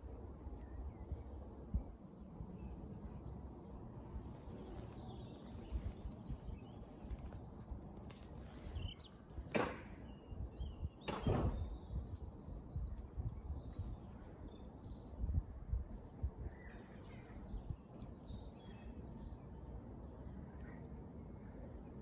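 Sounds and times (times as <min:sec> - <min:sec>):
faint bird chirps: 0:10.0 - 0:22.0.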